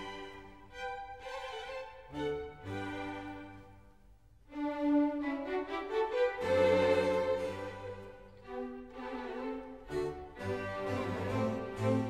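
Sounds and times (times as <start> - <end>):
violin and cello melody: 0.0 - 12.0.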